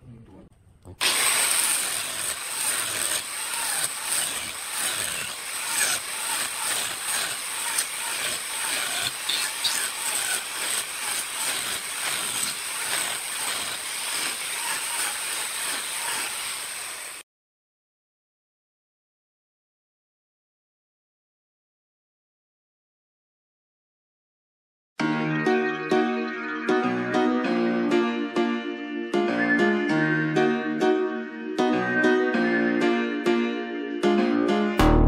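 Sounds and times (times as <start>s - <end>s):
angle grinder grinding wood: 1.0s - 17.2s.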